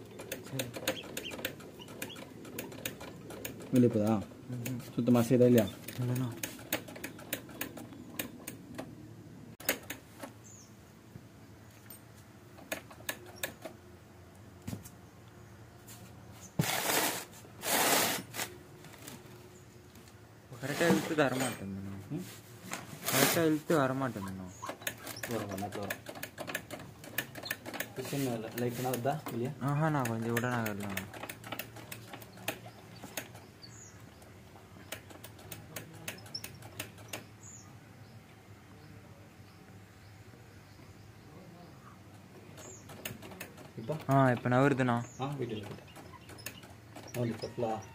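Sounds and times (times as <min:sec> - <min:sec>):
hand tools clicking on metal: 0:05.6 - 0:08.9, 0:24.6 - 0:33.5.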